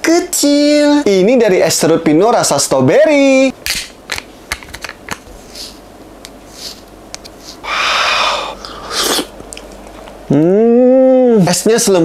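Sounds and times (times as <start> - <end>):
person humming mmm: 7.6 - 9.3, 10.3 - 11.4
slurping: 7.7 - 9.3.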